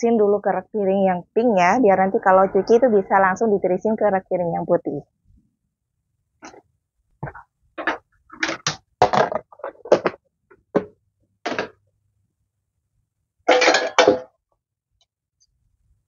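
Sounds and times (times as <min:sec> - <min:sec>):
dishes clattering: 0:13.5 - 0:14.3.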